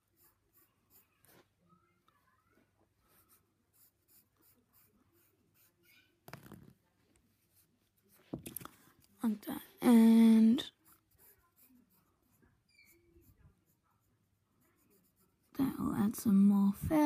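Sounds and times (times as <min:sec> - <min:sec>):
pencil scratching on paper: 0:00.0 - 0:01.5, 0:03.0 - 0:06.7, 0:09.8 - 0:17.0.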